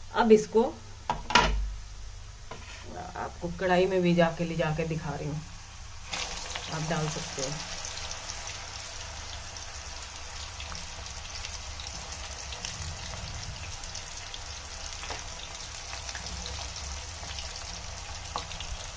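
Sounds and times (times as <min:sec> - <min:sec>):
slices sizzling in hot oil: 0:05.6 - 0:18.9.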